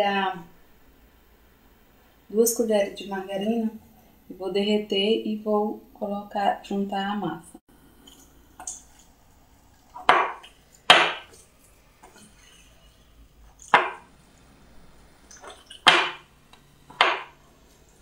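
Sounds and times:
spoon stirring batter in glass bowl: 8.0 - 14.1.

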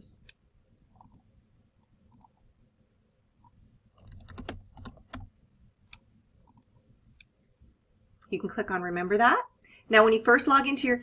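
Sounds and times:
typing on computer keyboard: 4.0 - 5.3.

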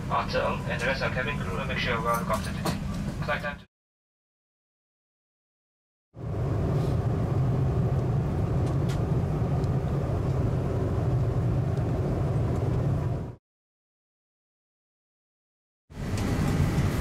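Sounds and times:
airliner cabin rumble: 0.0 - 3.7, 6.2 - 13.4, 16.0 - 17.0.

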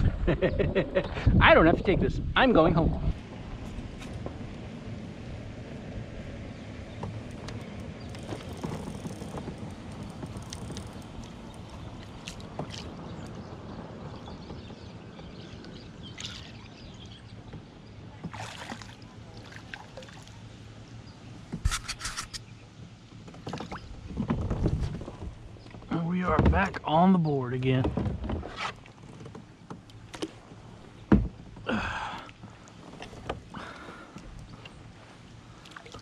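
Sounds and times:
wind on microphone: 0.0 - 5.5, 24.0 - 25.6
water lapping against hull: 2.8 - 36.0
small knocks of gear: 7.0 - 11.8.

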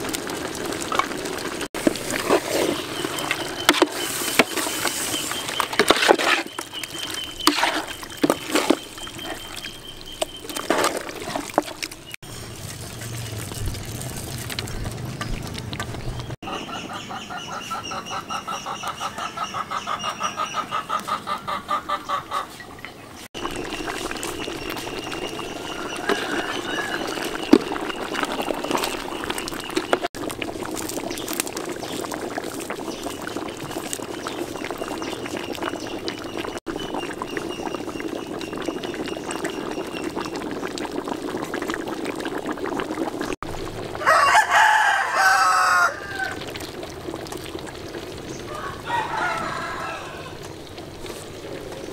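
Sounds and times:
chickens clucking: 16.4 - 30.1
rooster crowing: 25.7 - 27.4, 44.0 - 46.5, 48.5 - 50.4.

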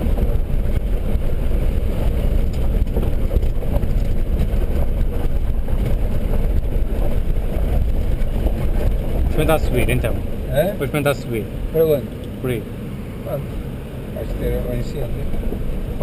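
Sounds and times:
knocks and rattles: 0.0 - 10.4
engine and tyres rumbling: 0.0 - 16.0.

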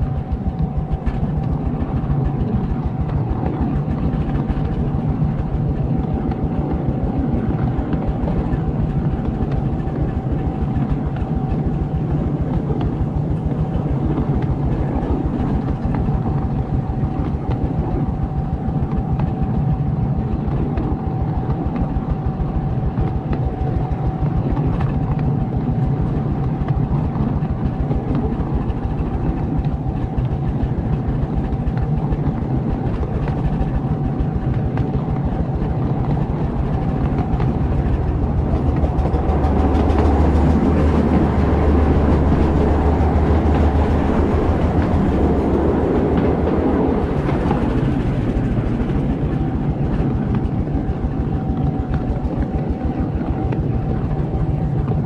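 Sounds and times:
faint steady whine: 0.0 - 55.0
train wheels rumbling on rail: 0.0 - 55.0.

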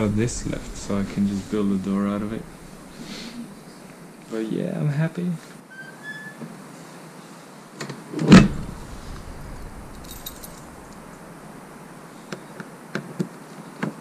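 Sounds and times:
door shut with thump: 8.2 - 11.6
keys jangling: 10.0 - 10.9.

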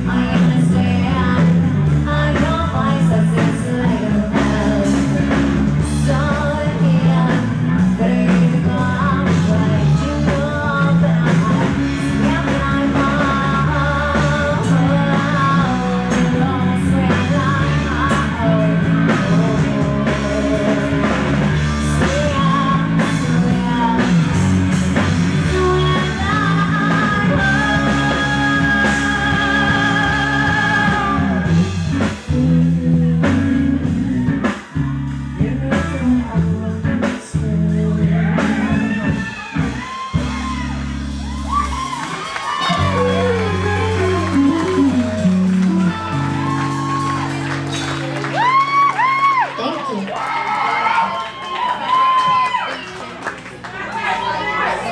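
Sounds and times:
woman singing: 0.0 - 34.6, 35.3 - 39.0, 42.6 - 45.9
drum kit: 0.0 - 49.4
electric guitars: 0.0 - 52.6.

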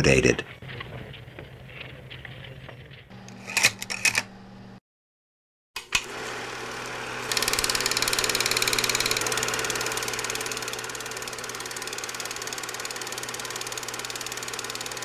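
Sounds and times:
steady hum: 3.1 - 4.8, 6.0 - 15.0
film projector clattering: 5.8 - 15.0.

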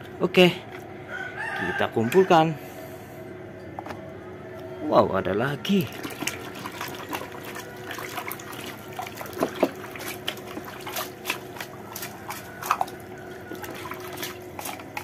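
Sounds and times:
hand splashing water in basin: 5.9 - 15.0.

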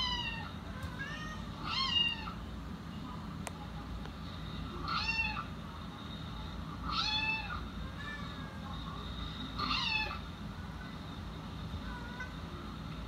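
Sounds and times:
cat meowing: 0.0 - 2.4, 4.8 - 5.5, 6.8 - 8.6, 9.6 - 10.2.

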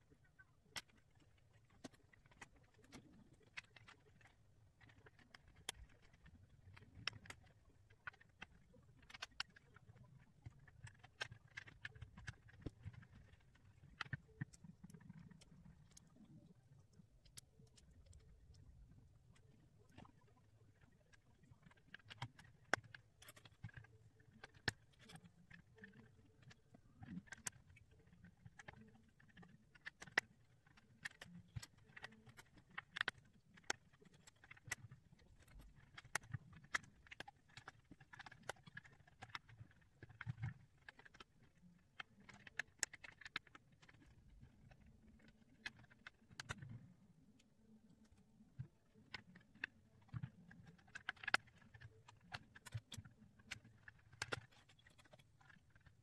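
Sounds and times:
plastic puzzle pieces clicking: 0.6 - 16.5, 17.2 - 56.0.

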